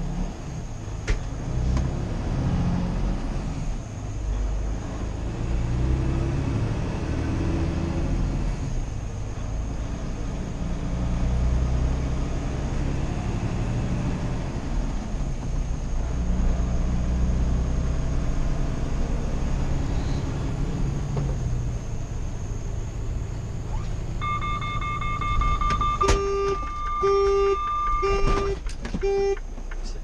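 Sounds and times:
truck engine and road noise: 0.0 - 30.0
pulsed high warning beep: 24.2 - 29.4.

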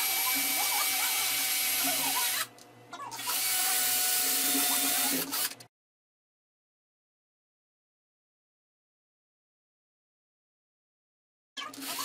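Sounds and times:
cordless drill motor whine: 0.0 - 2.5, 3.2 - 5.6.

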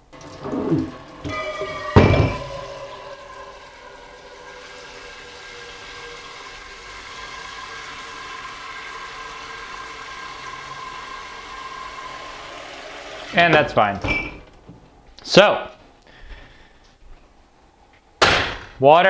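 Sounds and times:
water spraying into a pot: 0.0 - 13.5.

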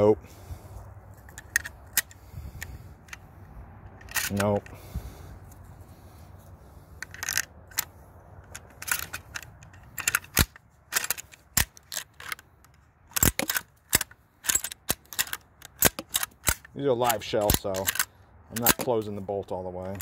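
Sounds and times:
shotgun action metal clicks: 1.2 - 3.3, 3.9 - 4.7, 7.0 - 19.2.

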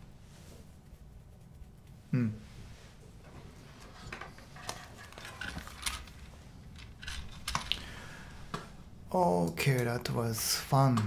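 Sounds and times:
headphones clicking and rustling: 3.2 - 8.7.

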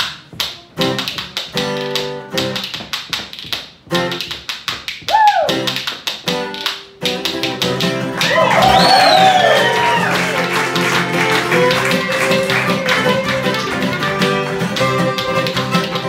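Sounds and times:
spoons clicking rhythm: 0.8 - 8.4, 10.4 - 16.0
strummed acoustic guitar: 10.2 - 16.0.

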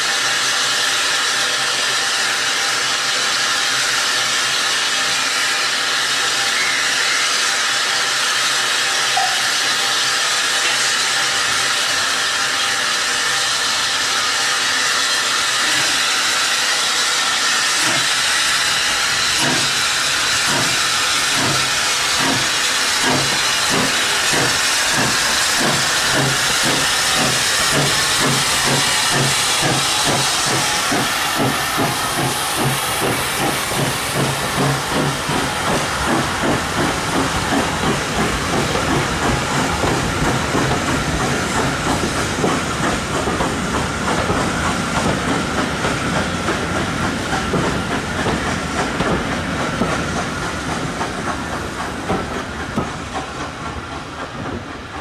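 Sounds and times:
steam exhaust chuffs: 0.0 - 55.0
steam locomotive hissing: 0.0 - 55.0.

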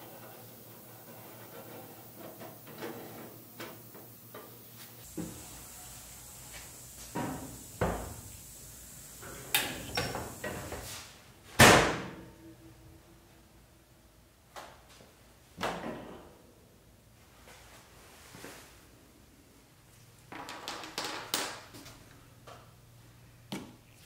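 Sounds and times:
loud door bang: 11.6 - 12.2.

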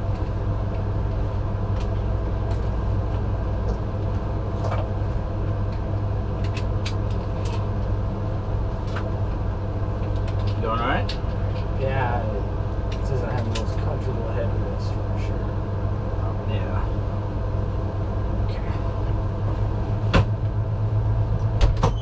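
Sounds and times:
ambulance engine rumble: 0.0 - 22.0
light rattles and clicks: 10.0 - 11.8, 12.9 - 13.9.

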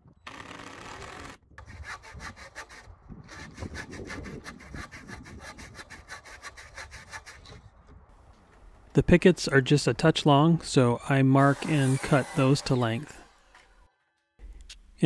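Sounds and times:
hand saw cutting wood: 0.3 - 7.6, 11.1 - 13.9
cordless drill running: 11.4 - 13.8.

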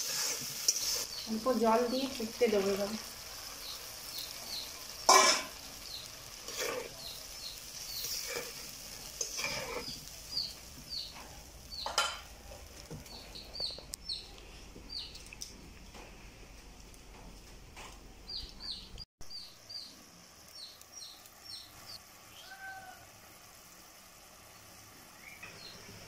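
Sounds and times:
low sizzle: 0.0 - 26.0
metal clanking on a wok: 4.5 - 12.4.

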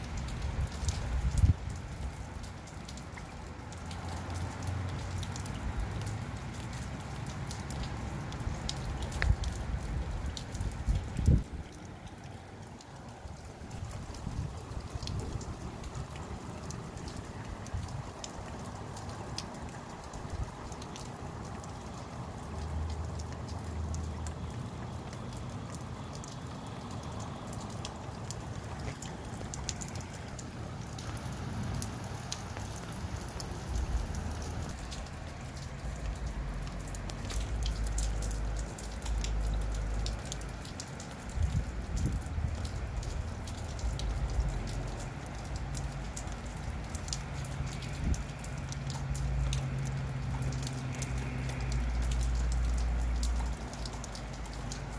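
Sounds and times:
rain falling: 0.0 - 54.9
raindrops ticking: 0.0 - 54.9
wind gusts rumbling: 13.6 - 16.5.

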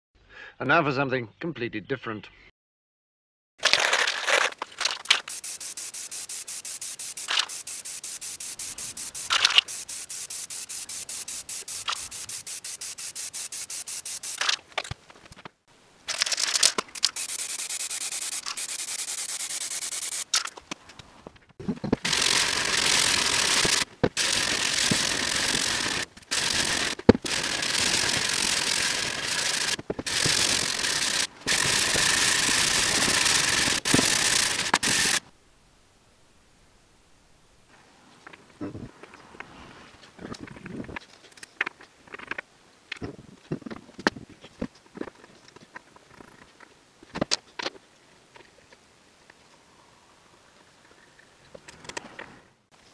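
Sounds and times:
aerosol spray can hissing: 5.0 - 14.6, 16.5 - 20.4, 22.0 - 35.2
fast even ticks: 22.0 - 35.2.

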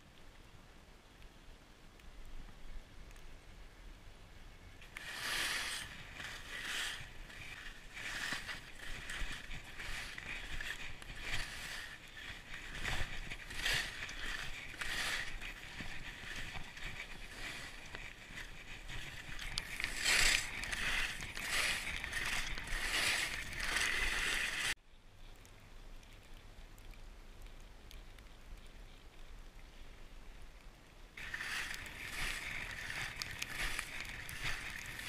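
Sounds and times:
skis swishing on snow: 4.8 - 24.8, 31.2 - 35.0.

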